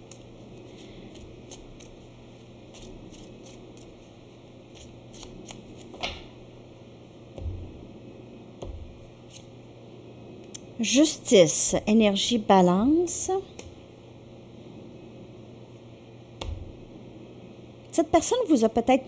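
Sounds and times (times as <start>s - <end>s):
cards being shuffled: 2.7s - 4.0s, 4.7s - 6.3s.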